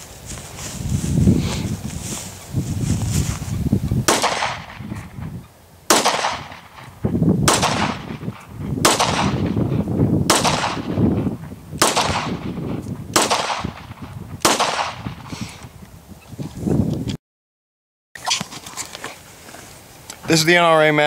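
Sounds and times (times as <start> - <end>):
pistol shots echoing: 4.1 - 4.8, 5.9 - 9.6, 10.3 - 11.2, 11.8 - 15.1.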